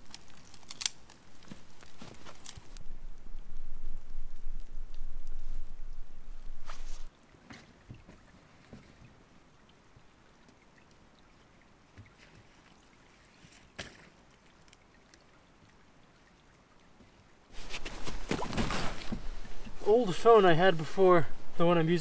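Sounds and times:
gear rustling and scraping: 0:00.0 - 0:02.9, 0:17.6 - 0:19.8.

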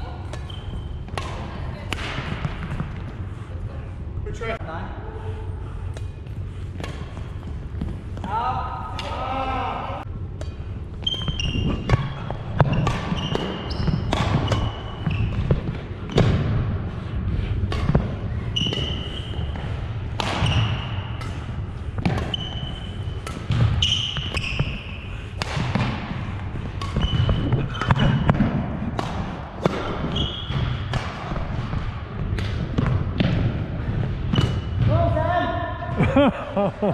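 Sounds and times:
sneakers squeaking on floor: 0:00.0 - 0:01.5, 0:10.4 - 0:16.5, 0:17.8 - 0:25.8, 0:26.7 - 0:28.5, 0:29.7 - 0:31.5
racket striking shuttlecock: 0:11.2 - 0:16.5, 0:20.1 - 0:22.4, 0:25.4 - 0:26.1, 0:26.8 - 0:31.8.

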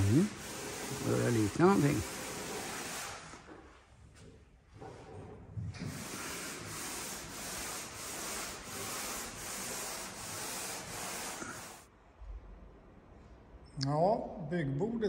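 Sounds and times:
sandpaper rubbing: 0:00.0 - 0:03.5, 0:05.8 - 0:11.9.

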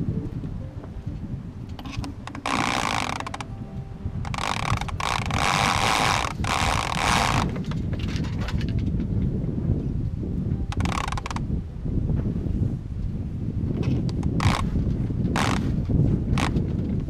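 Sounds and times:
wind rumble on microphone: 0:00.0 - 0:17.0
winch clicking: 0:01.7 - 0:03.5, 0:04.3 - 0:07.6
rope running: 0:04.3 - 0:07.7.

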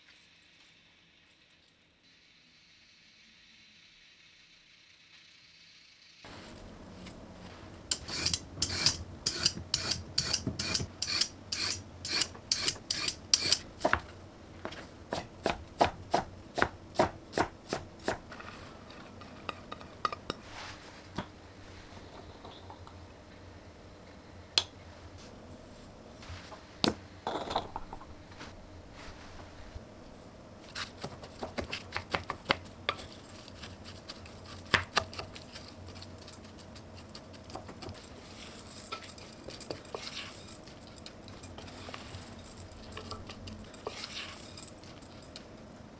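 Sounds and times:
peeler rasping on carrot: 0:07.9 - 0:13.6
light scrapes: 0:20.3 - 0:22.6, 0:38.0 - 0:45.2.

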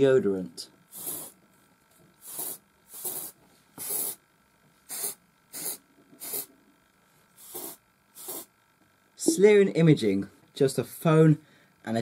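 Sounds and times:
aerosol spray hissing: 0:00.9 - 0:01.4, 0:02.2 - 0:04.2, 0:04.8 - 0:06.5, 0:07.4 - 0:08.5.

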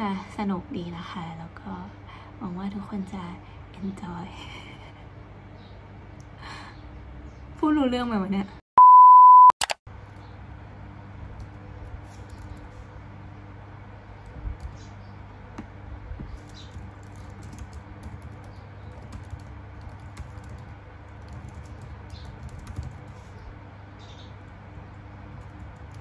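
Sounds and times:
low steady hum: 0:00.0 - 0:26.0
laptop keyboard typing: 0:11.4 - 0:12.7, 0:14.2 - 0:14.8, 0:16.3 - 0:23.4, 0:25.3 - 0:26.0.

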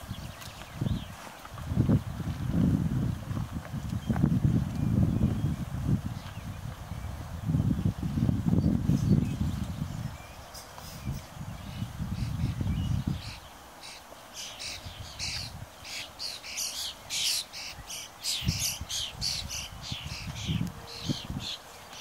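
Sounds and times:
bird harsh high calls: 0:13.2 - 0:22.0.

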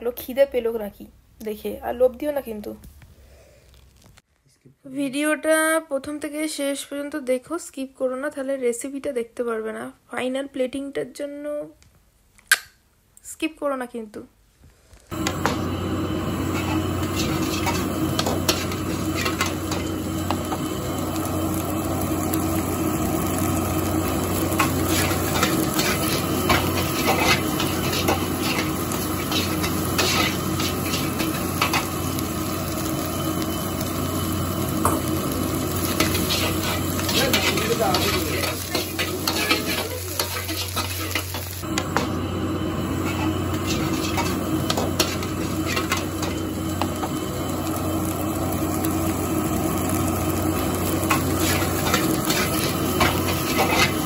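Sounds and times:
food sizzling in a wok: 0:15.1 - 0:54.0
steady low hum: 0:15.1 - 0:54.0
metal spatula scraping pan: 0:16.5 - 0:19.8, 0:24.6 - 0:31.9, 0:36.0 - 0:41.6, 0:43.0 - 0:46.4, 0:51.1 - 0:54.0.

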